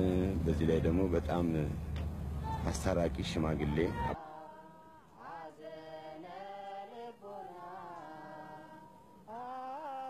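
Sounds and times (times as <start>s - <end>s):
voices chanting long notes: 3.7s - 10.0s.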